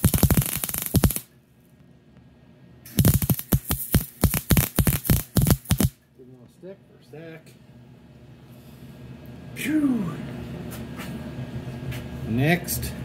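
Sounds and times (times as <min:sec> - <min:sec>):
welding arc crackling: 0:00.0 - 0:01.3, 0:02.9 - 0:06.0.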